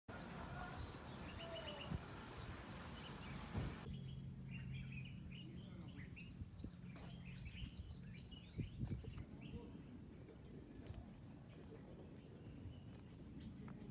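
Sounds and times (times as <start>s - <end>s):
birds chirping: 0.1s - 13.9s
low steady hum: 0.1s - 13.9s.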